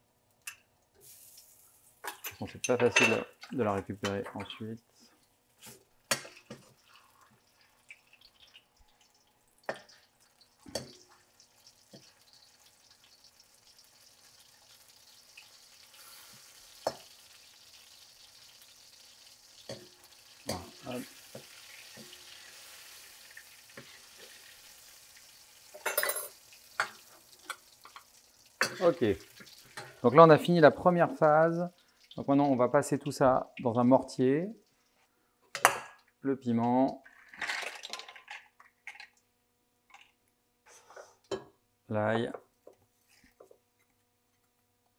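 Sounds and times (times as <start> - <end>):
paste sizzling in hot oil: 1.0 - 2.0, 5.6 - 32.2.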